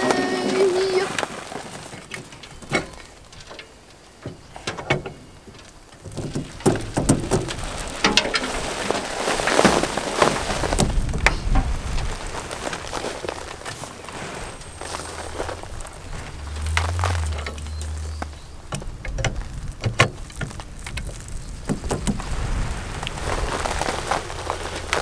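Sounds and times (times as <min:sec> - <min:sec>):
soil pattering into metal bucket: 0:05.5 - 0:25.0.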